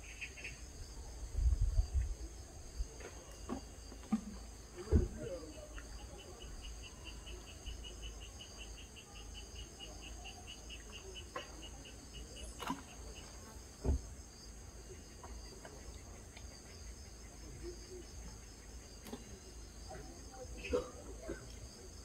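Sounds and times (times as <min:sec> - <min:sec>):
cricket chirping: 0:00.0 - 0:22.0.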